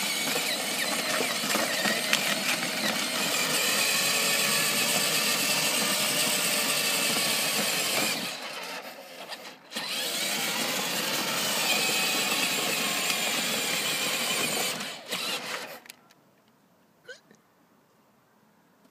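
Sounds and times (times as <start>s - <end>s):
electric toy car motors whirring: 0.0s - 16.0s.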